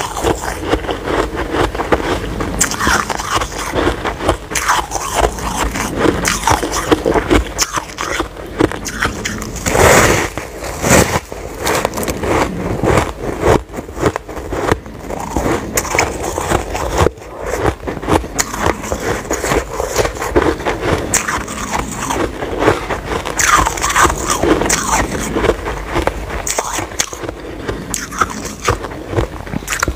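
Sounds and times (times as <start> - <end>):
ice being bitten and chewed: 0.0 - 29.9.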